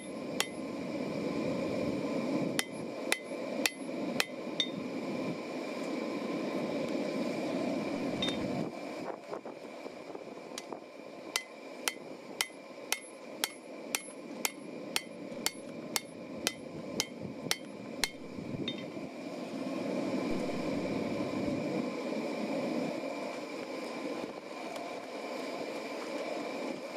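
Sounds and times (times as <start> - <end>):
hammer striking steel on anvil: 0.0 - 0.6, 2.6 - 4.8, 11.4 - 18.9
steady rushing noise: 0.0 - 26.9.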